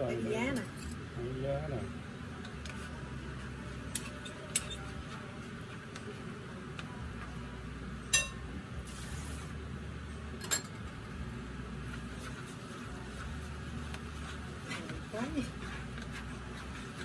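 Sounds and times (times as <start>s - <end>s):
steady low hum: 0.0s - 17.0s
dishes clinking: 8.1s - 8.4s, 10.4s - 10.8s.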